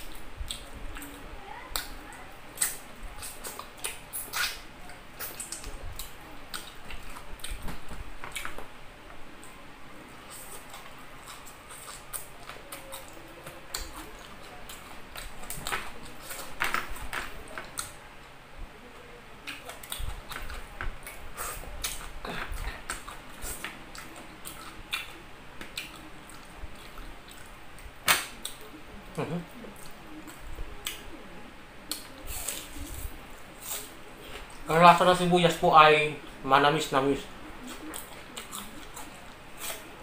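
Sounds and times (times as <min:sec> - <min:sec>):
man chewing food: 0:00.0 - 0:18.4, 0:19.3 - 0:36.4, 0:37.0 - 0:40.0
wet mouth clicks and smacks: 0:02.6 - 0:04.6.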